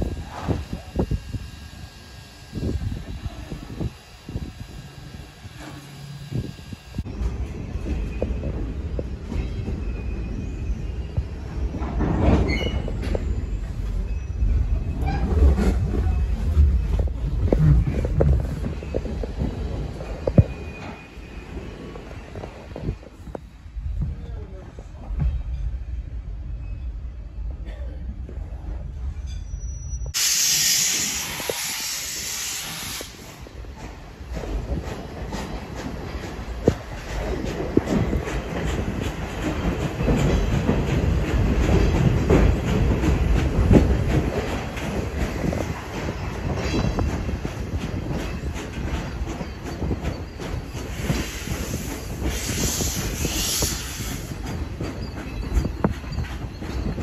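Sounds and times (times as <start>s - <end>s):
steam hissing from train: 0.0s - 7.1s, 30.2s - 34.2s, 48.6s - 55.3s
steel wheels rumbling on rails: 0.0s - 57.0s.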